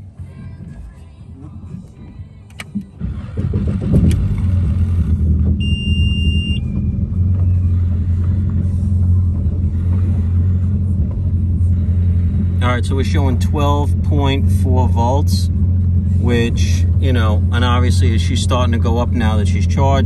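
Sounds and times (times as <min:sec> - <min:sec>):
boat engine cranking and idling: 0:00.0 - 0:20.0
ignition click: 0:02.4 - 0:04.5
electronic beep: 0:05.6 - 0:07.0.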